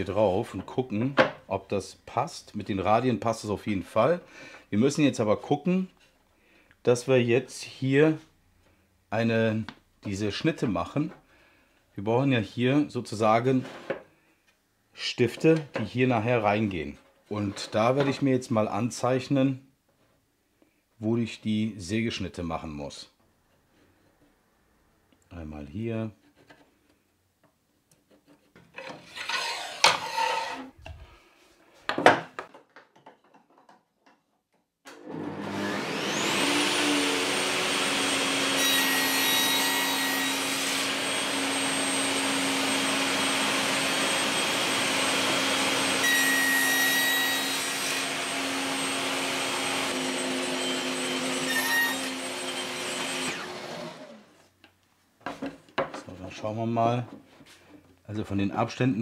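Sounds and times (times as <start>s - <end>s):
saw blade cutting plywood: 28.1s - 30.8s, 35.1s - 54.3s
table saw running: 29.1s - 30.7s, 35.0s - 54.3s
knocks handling plywood board: 55.2s - 56.1s.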